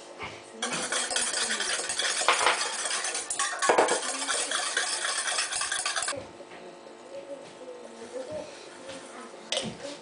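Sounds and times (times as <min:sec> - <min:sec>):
wire whisk scraping metal bowl: 0:00.6 - 0:06.2.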